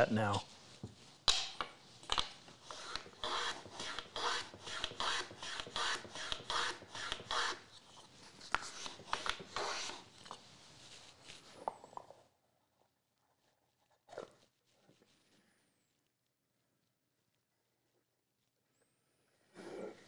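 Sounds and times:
hand tool strokes on wood: 2.6s - 7.7s.

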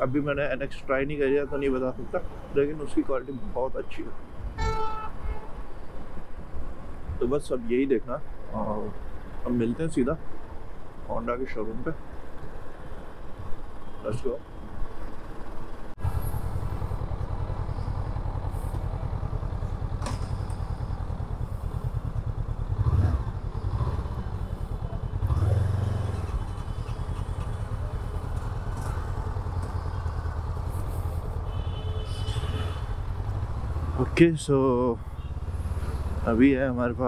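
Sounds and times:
motorcycle engine running: 16.0s - 34.1s.

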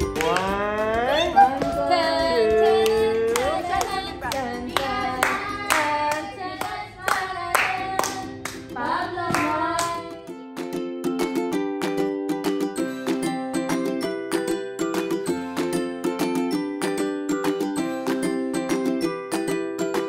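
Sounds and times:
hand claps: 0.0s - 1.8s, 2.6s - 8.7s, 9.3s - 10.1s
song with singing voice: 0.0s - 10.3s
plucked ukulele tune: 0.0s - 20.0s.

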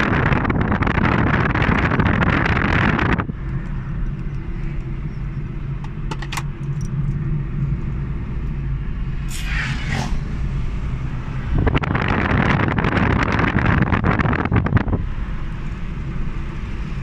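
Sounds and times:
wind noise rushing: 0.0s - 3.4s, 9.1s - 15.2s
car engine and road rumble: 0.0s - 17.0s.

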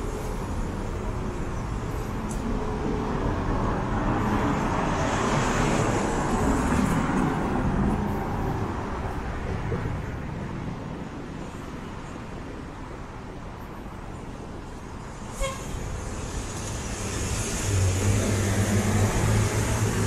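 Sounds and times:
cars passing: 0.0s - 20.0s
vehicle engine drone: 15.7s - 20.0s.

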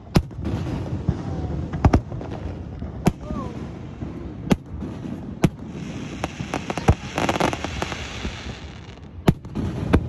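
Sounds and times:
fireworks bursting: 0.0s - 10.0s
small firework pops: 1.7s - 3.4s, 5.4s - 10.0s.

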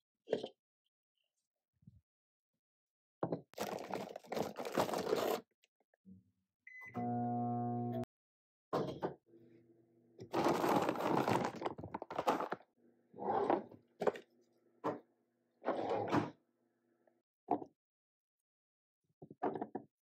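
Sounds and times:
microwave oven humming: 7.0s - 8.0s.

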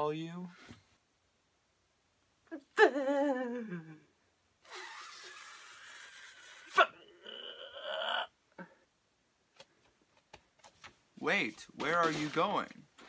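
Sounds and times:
man imitating whinny: 4.7s - 8.3s.

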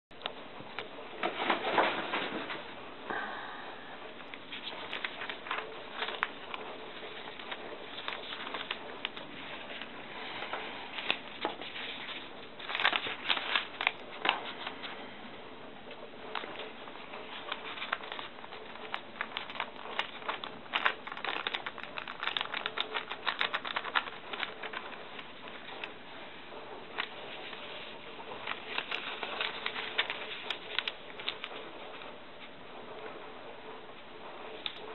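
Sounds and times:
thin paper crackling: 4.3s - 15.0s, 16.2s - 26.0s, 26.9s - 32.0s.

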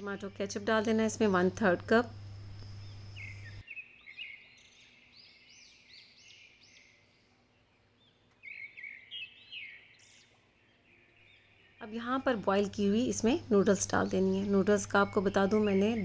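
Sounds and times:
steady hum: 0.0s - 3.6s, 11.8s - 16.0s
small birds chirping: 0.0s - 16.0s.

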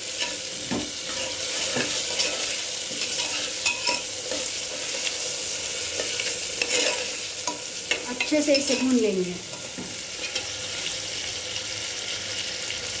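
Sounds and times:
vegetables sizzling in hot oil: 0.0s - 13.0s
metal spoon scraping pot: 1.1s - 5.0s, 6.0s - 8.9s.

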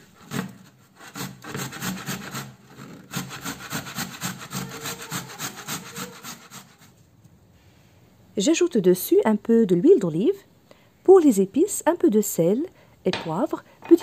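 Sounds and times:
grating on metal grater: 0.0s - 6.9s.

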